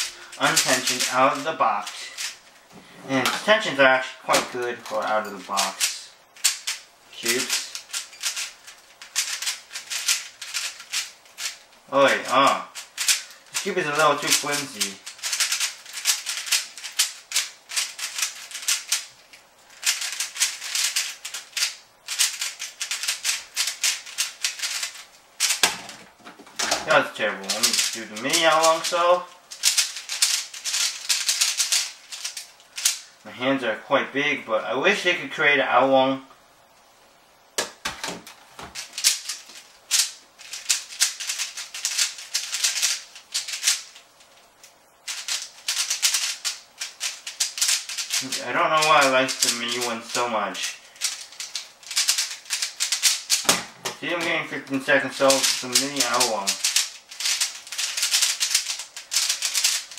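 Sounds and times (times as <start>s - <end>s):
puzzle cube clicking rapidly: 0.0s - 2.4s, 5.6s - 19.1s, 19.7s - 25.7s, 26.8s - 28.9s, 29.5s - 33.0s, 38.7s - 44.0s, 45.1s - 53.6s, 55.2s - 59.9s.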